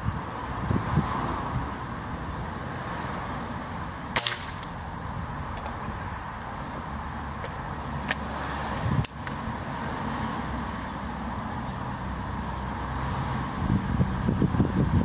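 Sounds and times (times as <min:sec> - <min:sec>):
air rifle cracks: 0:04.2 - 0:04.8.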